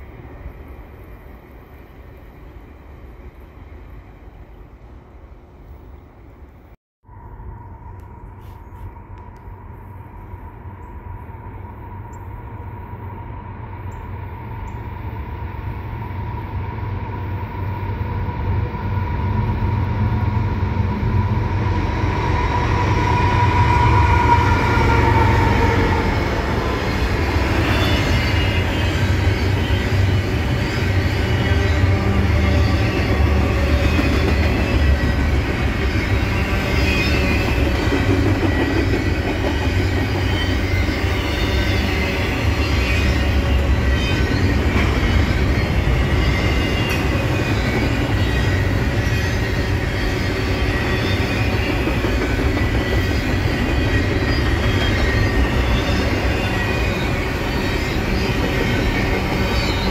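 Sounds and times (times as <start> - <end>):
locomotive high whine: 7.1 - 59.9
train wheel clatter: 32.6 - 59.9.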